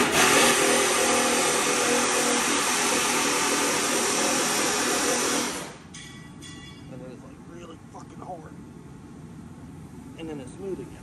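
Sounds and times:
machine running with rushing hiss: 0.0s - 5.9s.

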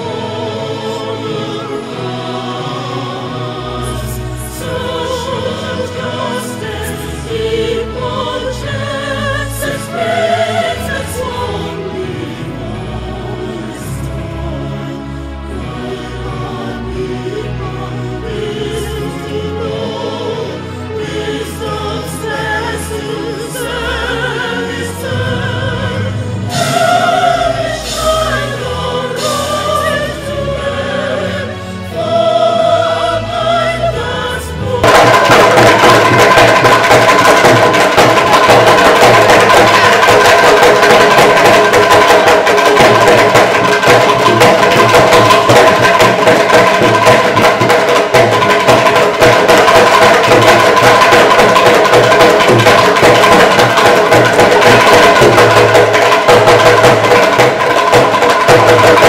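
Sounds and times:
voices singing together: 0.0s - 59.0s
rapid loud drumming: 34.8s - 59.0s.

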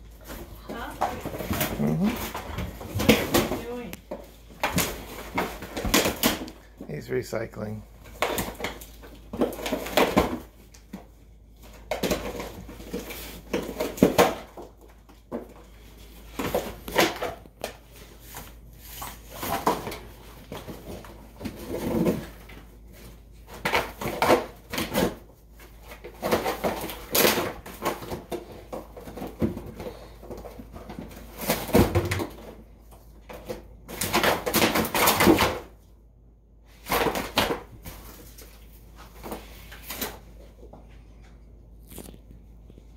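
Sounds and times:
dog tearing cardboard: 8.0s - 11.0s, 16.3s - 22.6s, 23.4s - 32.6s, 33.4s - 35.7s, 36.8s - 38.4s.

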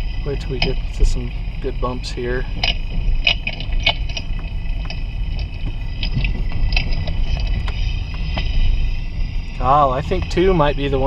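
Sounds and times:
road rumble inside car: 0.0s - 11.0s
clicks and crackles through speaker: 2.4s - 8.6s.

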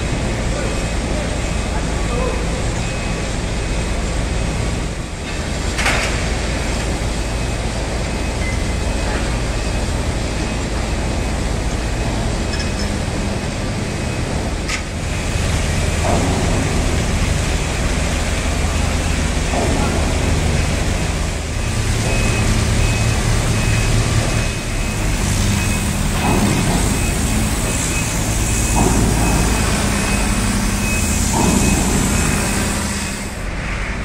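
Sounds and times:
shipyard machinery drone: 0.0s - 34.0s
sharp metallic knocks: 16.0s - 17.4s, 25.6s - 33.2s.

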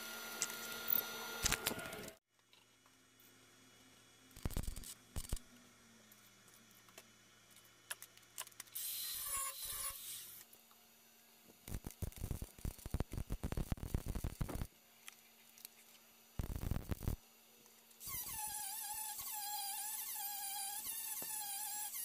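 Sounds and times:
welder crackling: 4.4s - 5.4s, 11.6s - 14.7s, 16.4s - 17.2s.

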